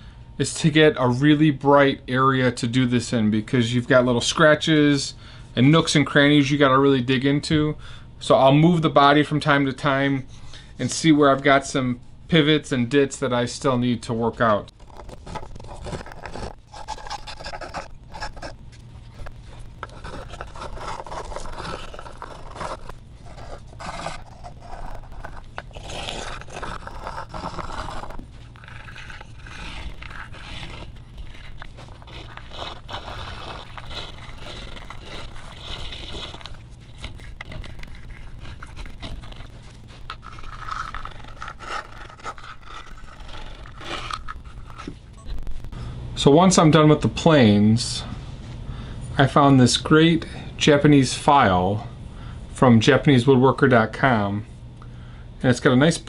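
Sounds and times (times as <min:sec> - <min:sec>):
steady low hum: 0:00.0 - 0:56.0
plane scraping wood: 0:14.9 - 0:18.6, 0:19.8 - 0:45.0.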